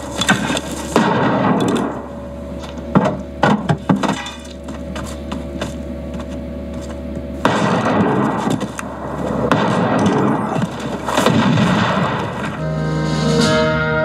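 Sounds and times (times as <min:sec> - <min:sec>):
low steady hum: 0:00.0 - 0:14.0
gunshot cracks: 0:01.0 - 0:01.9, 0:07.4 - 0:08.5, 0:09.4 - 0:12.6
wood splintering: 0:02.7 - 0:12.6.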